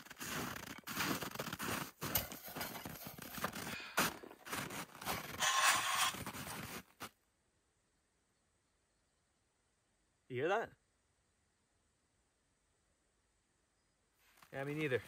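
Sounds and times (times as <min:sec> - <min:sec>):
boots crunching in snow: 0:00.0 - 0:07.2.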